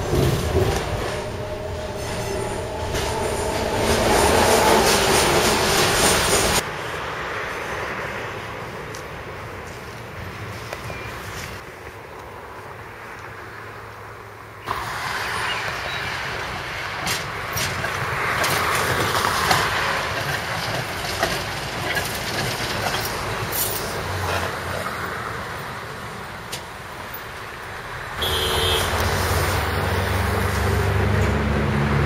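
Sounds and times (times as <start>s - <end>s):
wheels clicking over rail joints: 0.0s - 6.7s, 14.6s - 28.2s
tram wheels rolling on rails: 0.0s - 12.0s, 14.6s - 32.0s.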